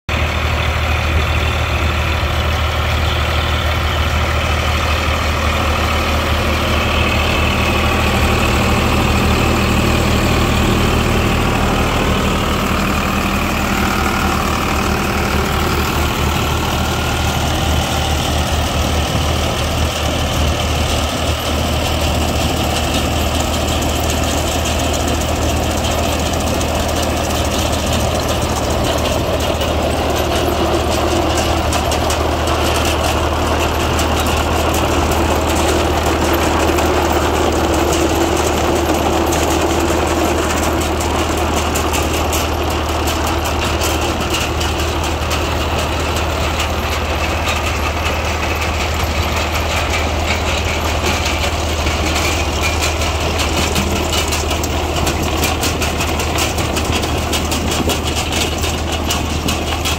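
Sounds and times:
tractor engine running: 0.0s - 59.9s
harvester mechanical clatter: 0.1s - 59.9s.

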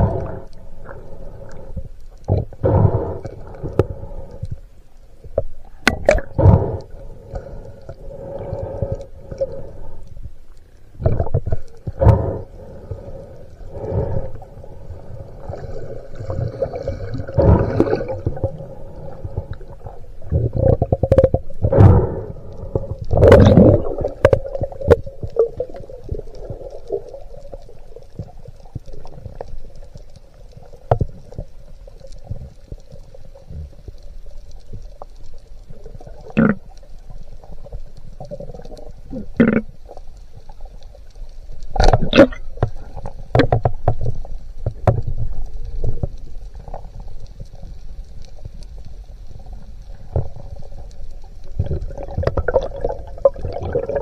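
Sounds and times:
underwater rushing water: 0.0s - 54.0s
sharp clicks and knocks: 41.8s - 45.2s.

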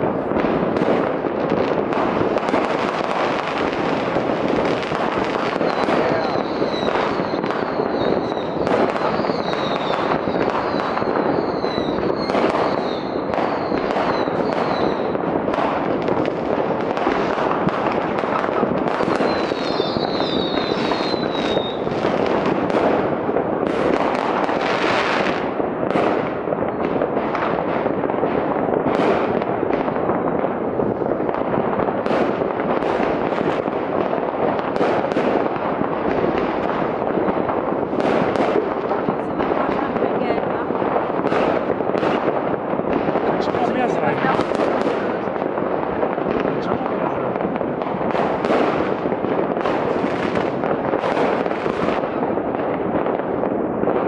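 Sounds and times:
fireworks bangs and crackles: 0.0s - 54.0s
falling firework whistles: 5.5s - 15.2s, 18.9s - 22.0s.

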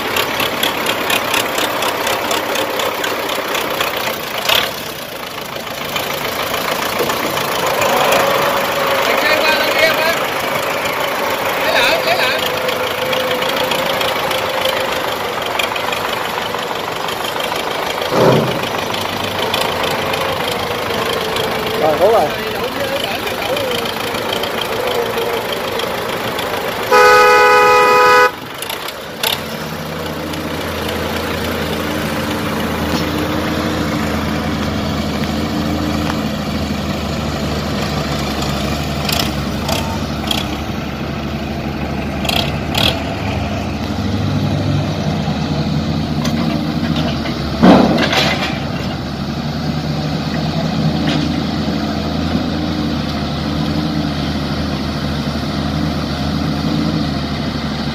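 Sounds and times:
diesel engines running: 0.0s - 57.9s
loud horn blaring: 7.6s - 15.4s, 26.8s - 28.5s
metal clanks: 17.9s - 20.2s, 46.2s - 49.1s
loud bang: 18.0s - 18.9s.

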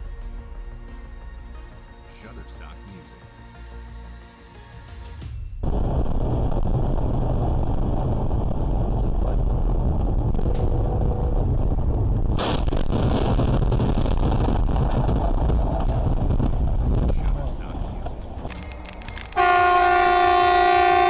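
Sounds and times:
road and engine rumble: 7.6s - 21.0s.

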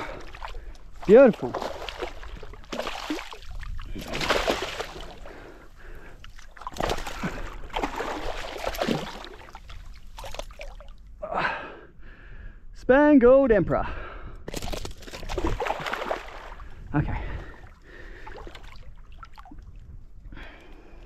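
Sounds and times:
shallow water splashing: 0.0s - 11.1s, 14.6s - 19.8s.

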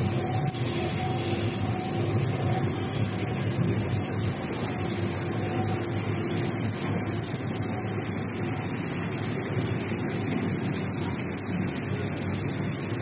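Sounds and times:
faint steady tones: 0.0s - 13.0s
printing press mechanical hum: 0.0s - 13.0s.

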